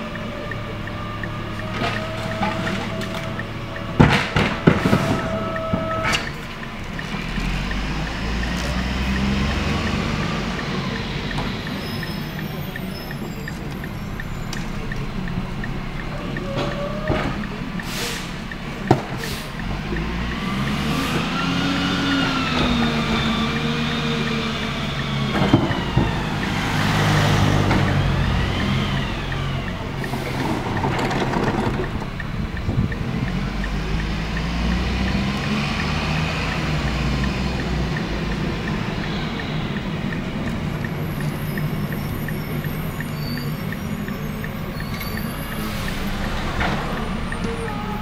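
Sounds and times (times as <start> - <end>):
hydraulic packer running: 0.0 - 18.5, 19.1 - 32.9
garbage truck diesel engine revving: 0.0 - 48.0.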